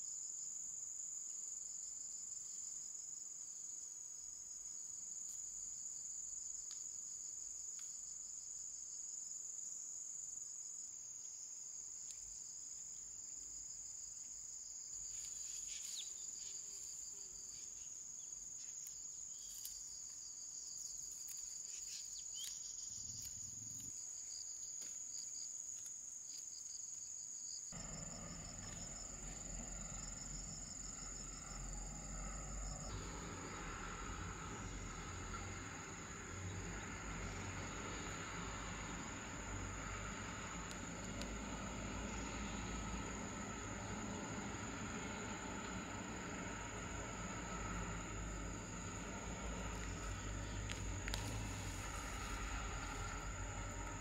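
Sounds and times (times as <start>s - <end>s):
insects chirring: 0.0s - 54.0s
low noise: 27.8s - 54.0s.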